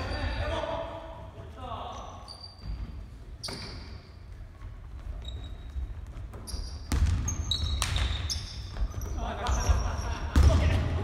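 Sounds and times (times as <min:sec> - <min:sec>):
sneakers squeaking: 0:01.8 - 0:11.0
basketball bouncing on wooden floor: 0:06.0 - 0:09.1.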